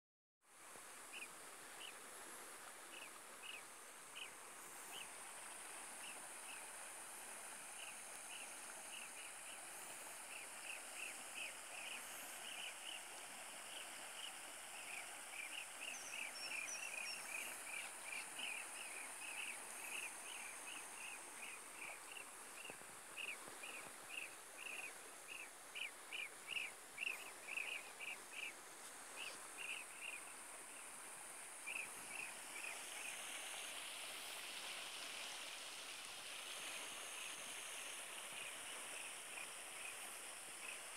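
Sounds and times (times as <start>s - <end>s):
steady high hiss: 0.5s - 40.9s
small birds chirping: 13.7s - 28.5s.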